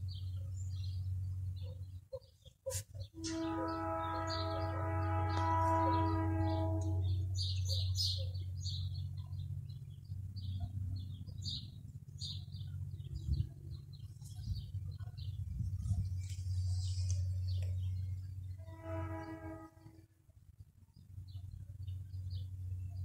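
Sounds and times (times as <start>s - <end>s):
birds chirping: 0.0s - 20.0s
steady low hum: 0.0s - 23.0s
locomotive air horn chord: 3.2s - 8.1s, 16.7s - 20.2s.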